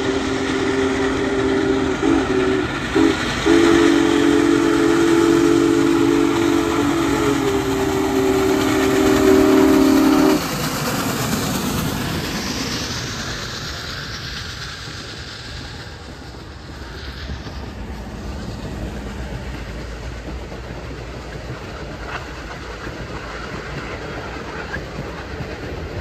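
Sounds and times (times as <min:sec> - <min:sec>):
steam whistle chord: 0:00.0 - 0:10.5
moving train rumble and hiss: 0:00.0 - 0:26.0.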